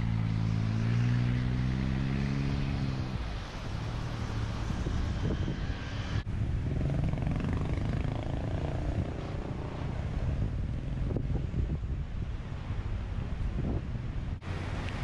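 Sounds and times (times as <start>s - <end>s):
passing vehicle engine: 0.0s - 11.5s
car engines and tyres on road: 0.0s - 15.0s
wind rumble on microphone: 0.0s - 15.0s.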